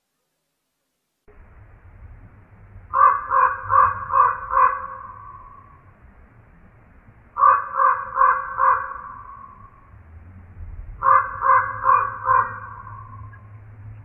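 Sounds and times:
crow cawing: 2.9 - 5.7, 7.4 - 9.7, 11.0 - 13.2.

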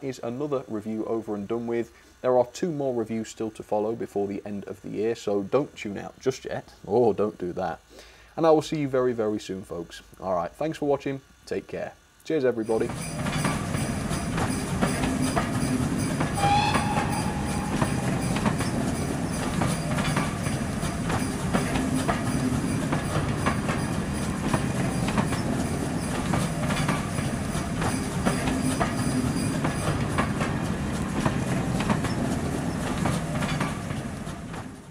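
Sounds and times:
train rumbling along track: 12.6 - 34.9
high wheel squeal: 12.7 - 30.3
wheels clicking over rails: 12.7 - 34.9.

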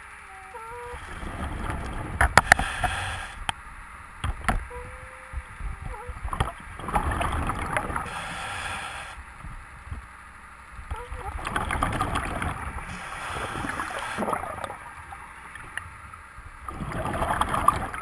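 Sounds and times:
thin whistle: 0.2 - 1.0, 4.7 - 5.4
exhaled bubbles rushing: 0.9 - 2.6, 5.7 - 8.4, 11.0 - 15.2, 16.6 - 18.0.

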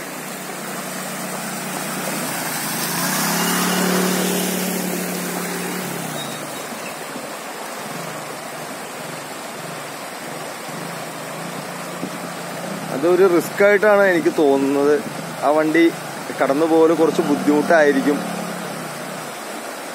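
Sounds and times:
floodwater rushing: 0.0 - 19.9
motorcycle engine running: 0.4 - 6.1.

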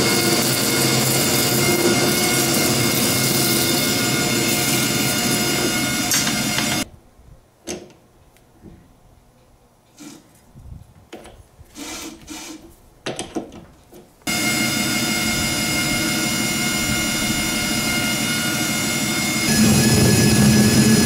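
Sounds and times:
lathe running with whine: 0.0 - 6.8, 14.3 - 21.0
tool facing spinning metal: 0.0 - 6.8, 14.3 - 21.0.

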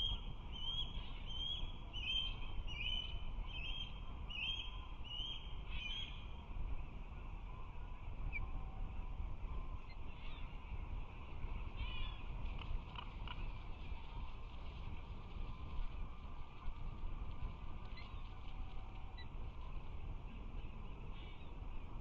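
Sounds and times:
osprey whistled chirps: 0.0 - 6.2
low rumble: 6.1 - 22.0.

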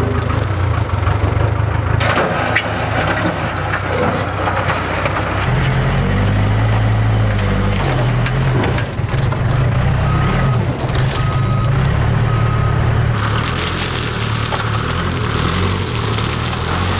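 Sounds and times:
backhoe engine running: 0.0 - 16.9
backup alarm beeping: 10.0 - 12.8.

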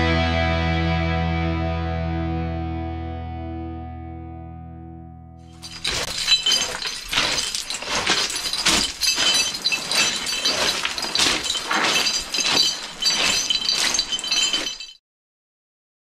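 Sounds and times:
climbing gear jingling: 5.5 - 15.0
footsteps crunching on pebbles: 5.5 - 15.0.

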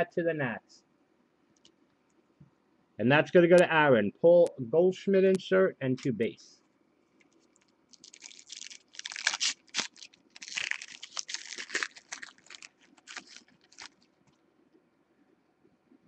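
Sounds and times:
foil wrapper crinkling: 7.3 - 14.4.

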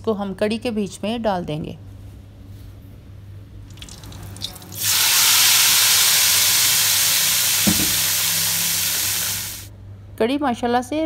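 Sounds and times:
hot oil sizzling in liquid: 3.7 - 9.7.

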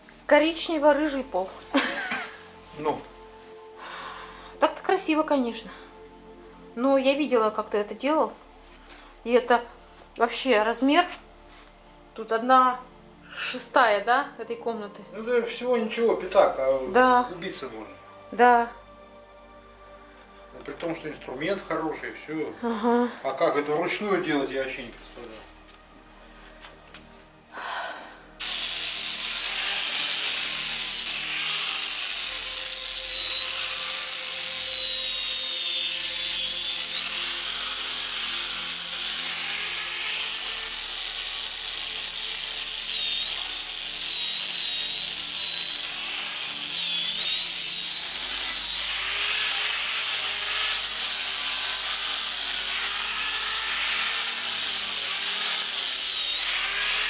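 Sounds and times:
angle grinder sanding wood: 28.4 - 57.0.

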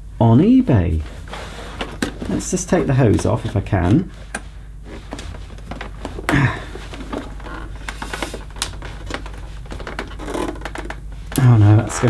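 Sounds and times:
plastic clicks and knocks: 7.0 - 11.4.

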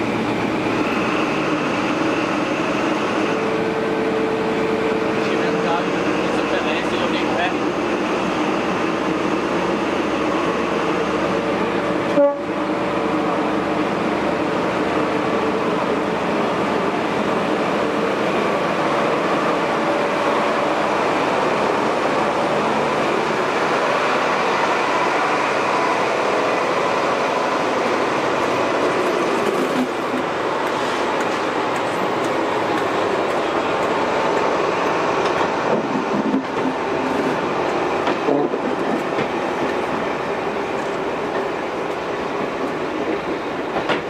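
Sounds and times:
diesel train passing: 0.0 - 44.0
train horn toot: 12.1 - 12.6.

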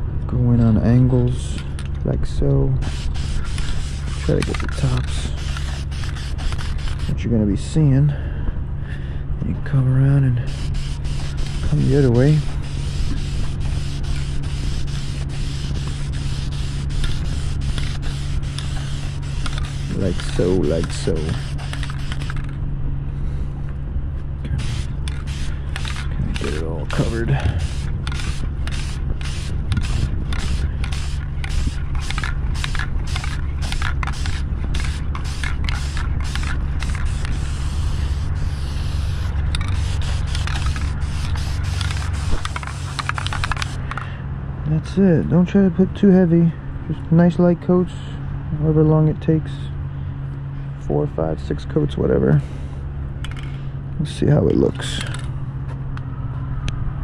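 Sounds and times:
low rumble: 0.0 - 44.6
steady low hum: 0.0 - 57.0
spray paint can hissing: 2.8 - 7.2, 10.4 - 22.6, 24.5 - 44.0.

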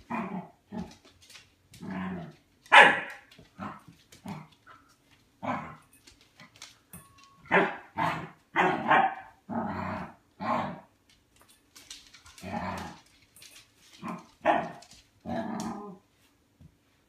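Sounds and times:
small dog barking: 2.7 - 3.3, 7.5 - 9.4, 14.4 - 14.8.

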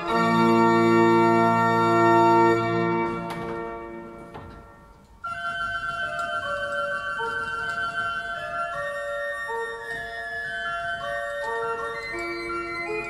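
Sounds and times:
pipe organ chord with deep bass: 0.0 - 4.6.

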